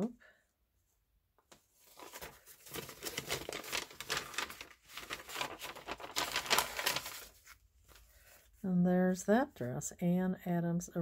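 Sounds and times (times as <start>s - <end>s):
old paper rustling and crinkling: 1.5s - 8.6s.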